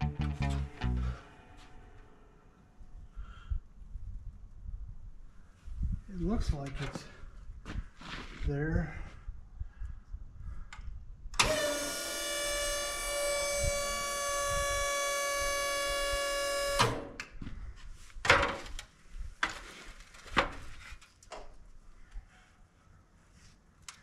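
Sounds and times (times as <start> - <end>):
hydraulic pump whining: 11.4 - 17.2.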